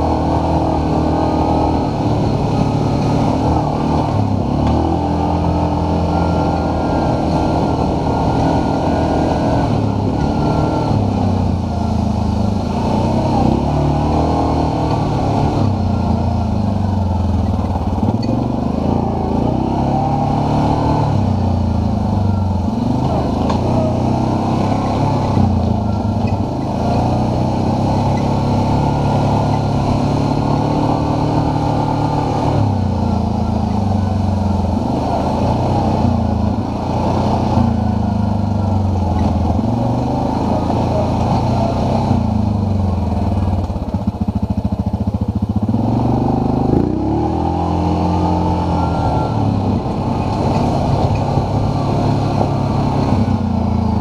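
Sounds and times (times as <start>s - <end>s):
atv engine running: 0.0s - 54.0s.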